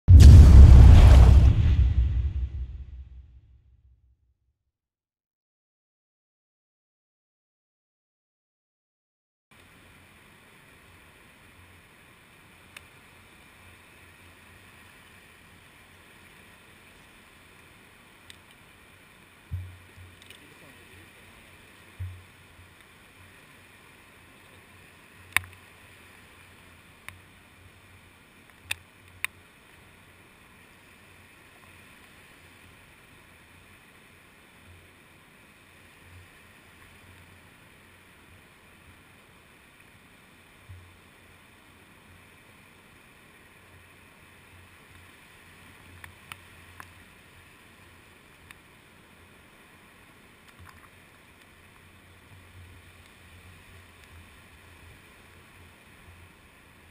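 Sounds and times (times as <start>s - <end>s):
muffled surf washing: 0.1s - 3.2s, 9.6s - 56.9s
soft low thumps: 0.1s - 3.3s.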